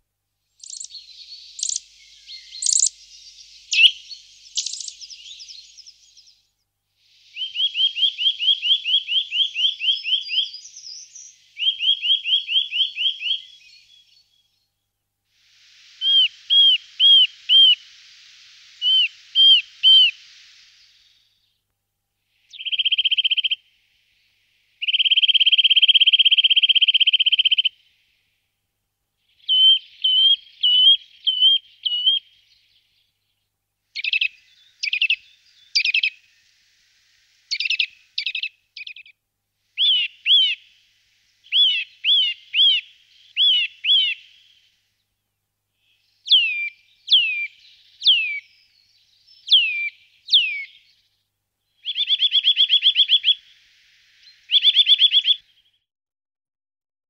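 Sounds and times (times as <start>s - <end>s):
bird whistled song and trills: 0.6s - 14.8s, 15.4s - 21.6s, 22.3s - 28.2s, 29.2s - 39.2s, 39.8s - 45.2s, 45.8s - 55.8s.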